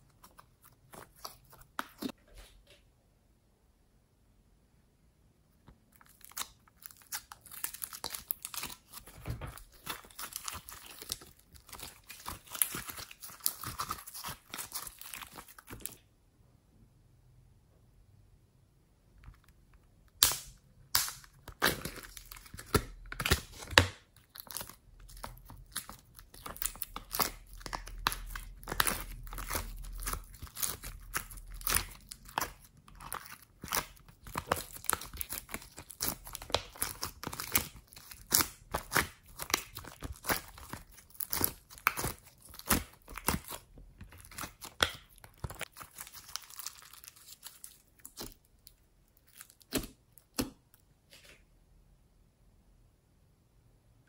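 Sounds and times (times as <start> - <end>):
slime crackling and popping: 6.0 - 16.0, 20.1 - 50.6.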